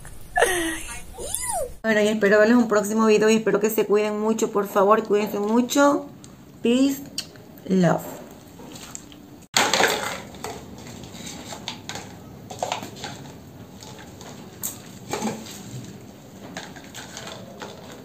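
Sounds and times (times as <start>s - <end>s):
plastic cups clattering on tile: 9.6s - 18.0s.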